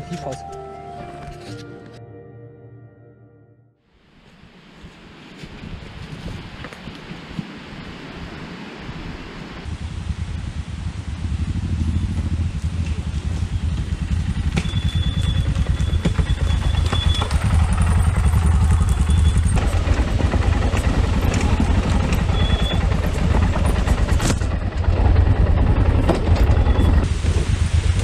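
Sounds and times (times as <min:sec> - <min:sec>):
motorcycle engine at low revs: 0:09.6 - 0:28.0.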